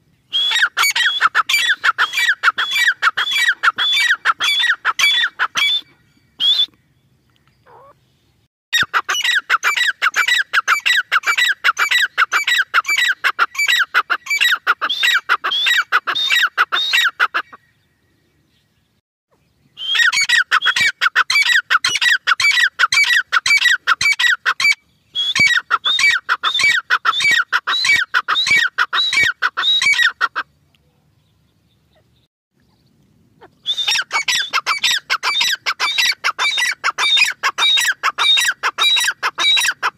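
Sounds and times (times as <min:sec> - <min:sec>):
francolin calling: 0:00.3 - 0:08.0, 0:33.4 - 0:39.9.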